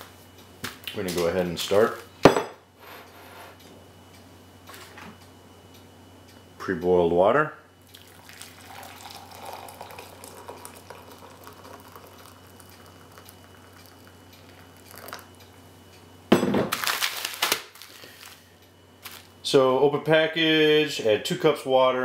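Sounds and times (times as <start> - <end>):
water pouring into glass cup: 7.9 - 15.3
foil pouch crinkling: 16.7 - 18.4, 19.0 - 19.3.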